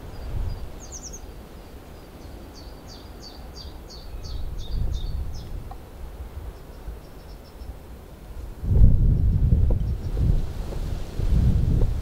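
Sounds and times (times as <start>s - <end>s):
wind rumble on microphone: 0.0s - 1.3s, 3.6s - 12.0s
songbird singing: 0.0s - 12.0s.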